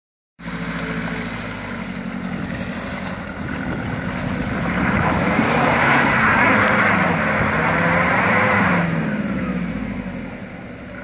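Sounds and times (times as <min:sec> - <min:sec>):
off-road vehicle engine climbing: 0:00.4 - 0:11.0.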